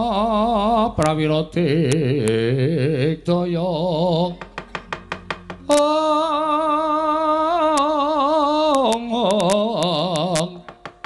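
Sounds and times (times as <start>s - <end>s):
rapid sharp wooden knocks: 4.4s - 5.7s, 10.4s - 11.0s.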